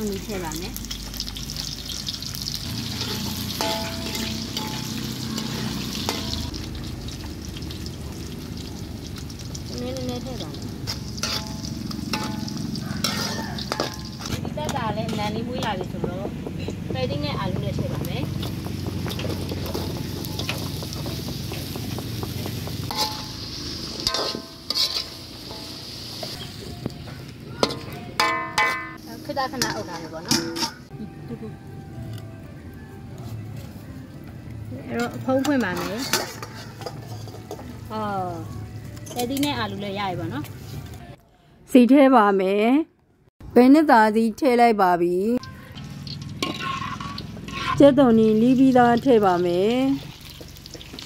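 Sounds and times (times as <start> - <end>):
onions sizzling in hot oil: 0.0 - 15.8, 17.2 - 27.0, 29.0 - 30.6, 45.4 - 51.0
metal ladle stirring in wok: 1.3 - 8.7, 10.6 - 14.4, 18.4 - 26.6, 35.4 - 37.9, 45.4 - 49.4, 50.1 - 51.0.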